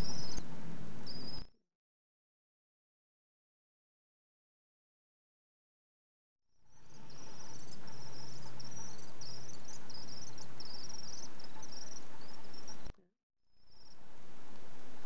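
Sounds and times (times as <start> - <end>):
young swift begging calls: 0.0 - 1.5, 6.7 - 12.9.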